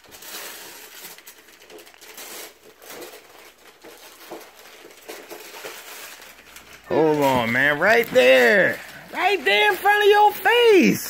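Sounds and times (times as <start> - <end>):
wrapping paper rustling and tearing: 0.0 - 11.0.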